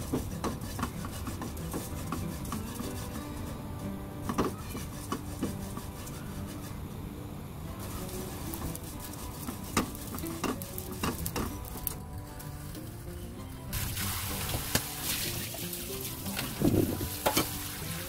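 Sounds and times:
spatula scraping and tapping pan: 0.0s - 6.8s, 7.9s - 12.0s, 15.9s - 17.7s
stirring sizzle in a wok: 0.0s - 6.8s, 7.7s - 12.8s, 13.6s - 18.0s.

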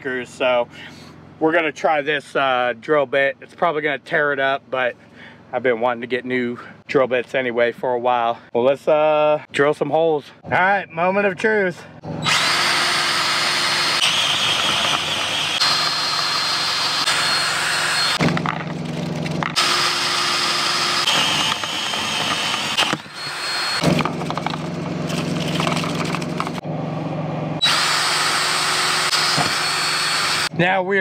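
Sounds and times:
drill boring through metal: 12.1s - 18.5s, 19.6s - 26.6s, 27.6s - 30.5s.

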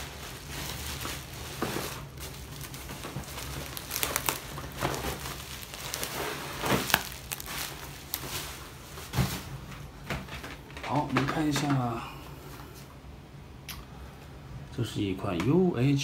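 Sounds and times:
bubble wrap crinkling: 0.0s - 9.7s.

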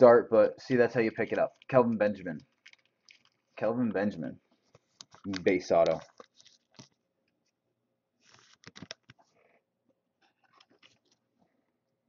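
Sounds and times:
trading cards rustling: 1.1s - 3.6s, 4.5s - 7.0s, 8.2s - 9.4s.

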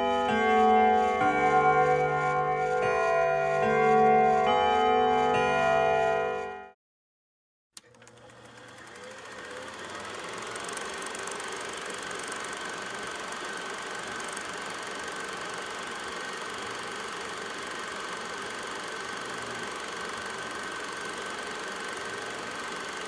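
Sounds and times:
machine running with rattle: 0.0s - 5.3s, 7.8s - 23.0s
click: 7.8s - 8.4s.

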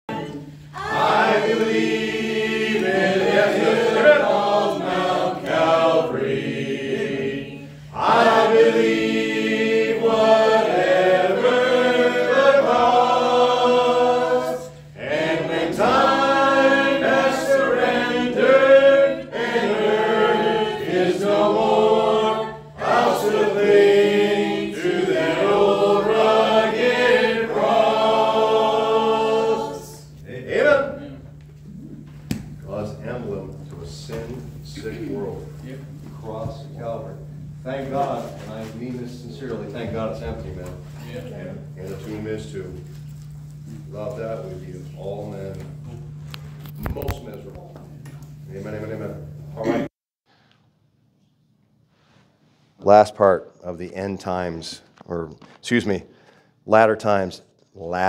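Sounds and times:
group singing a hymn: 0.0s - 31.2s.

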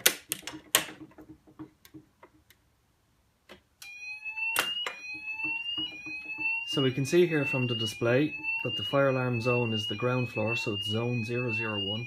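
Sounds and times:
fire alarm rising electronic tone: 3.8s - 12.0s.

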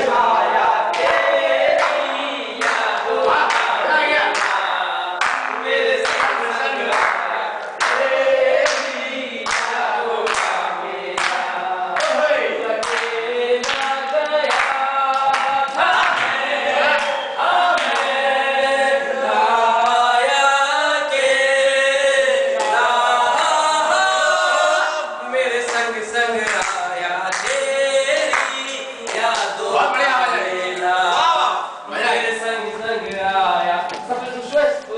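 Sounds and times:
group singing: 0.0s - 34.9s
hand claps: 0.9s - 18.2s, 25.6s - 29.6s.

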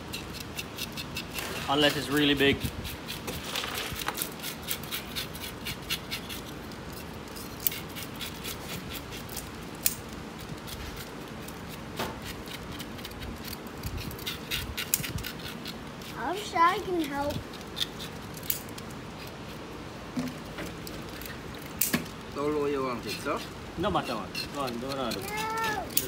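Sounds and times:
shears snipping: 24.0s - 26.0s.

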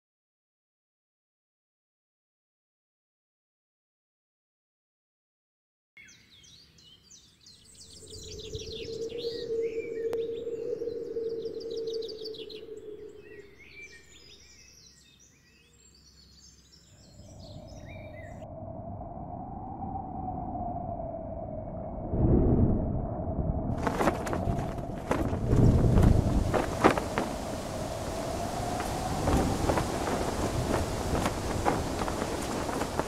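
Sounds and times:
birds chirping and calling: 6.1s - 18.4s
wind gust with low rumble: 7.7s - 14.6s, 17.0s - 33.0s
low moaning wind: 7.7s - 14.7s, 16.9s - 33.0s.

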